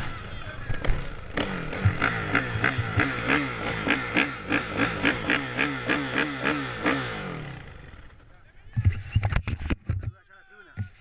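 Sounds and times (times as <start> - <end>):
motorcycle engine revving: 0.0 - 8.2.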